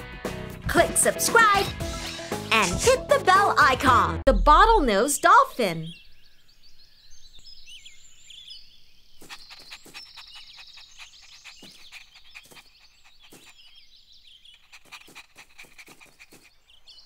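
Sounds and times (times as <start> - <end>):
birds chirping and trilling: 4.3 - 17.0.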